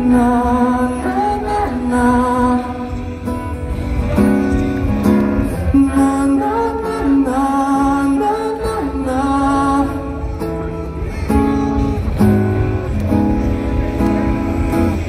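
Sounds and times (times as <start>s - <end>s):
person singing: 0.0s - 3.4s, 5.4s - 12.0s
acoustic guitar and band: 0.0s - 15.0s.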